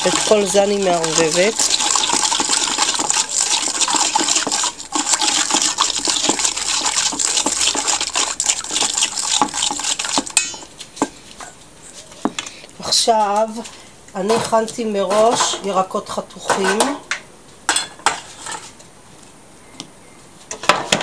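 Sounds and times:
spoon scraping metal bowl: 0.0s - 11.2s, 18.0s - 18.7s
oil sloshing in a bowl: 0.0s - 11.4s.

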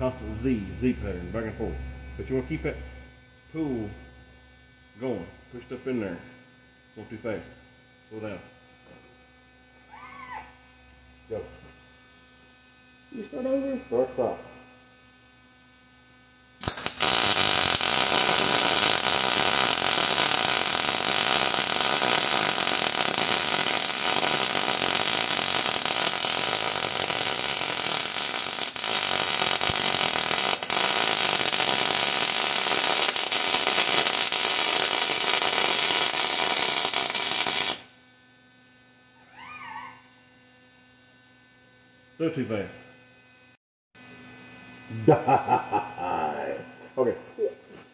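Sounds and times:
welding arc crackling: 16.6s - 37.9s.

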